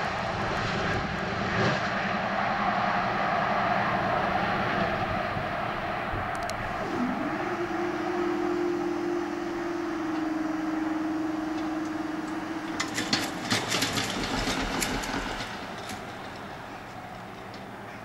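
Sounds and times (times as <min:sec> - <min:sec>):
diesel train engine hum: 0:00.0 - 0:18.0
sharp clicks and rattles: 0:11.5 - 0:17.9.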